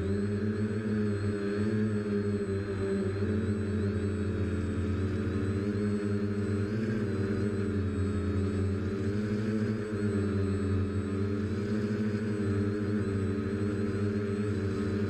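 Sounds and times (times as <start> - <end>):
quadcopter motors humming: 0.0 - 15.0.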